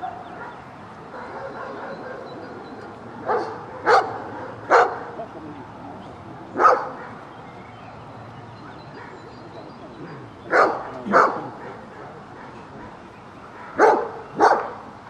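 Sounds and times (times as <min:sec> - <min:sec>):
dog barking sharply: 0:03.3 - 0:05.0, 0:13.6 - 0:14.8.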